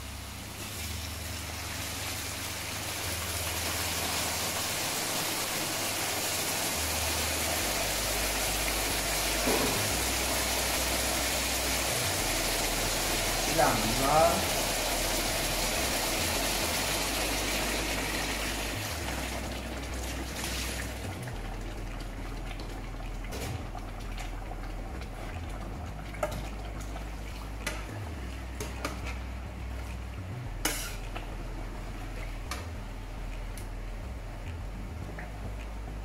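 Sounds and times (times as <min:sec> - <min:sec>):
stock poured into hot pan hissing: 0:00.5 - 0:19.4
metal spatula scraping steel pan: 0:30.6 - 0:31.1.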